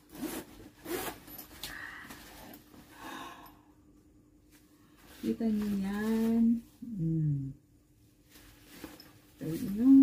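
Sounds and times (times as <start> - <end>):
backpack zipper opening: 0.0 - 1.4
fabric rustling: 4.4 - 6.9, 8.0 - 10.0.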